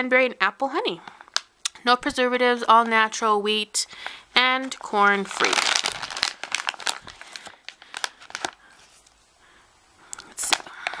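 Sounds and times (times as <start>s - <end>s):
plastic pouch crinkling: 2.8s - 9.2s, 10.1s - 11.0s.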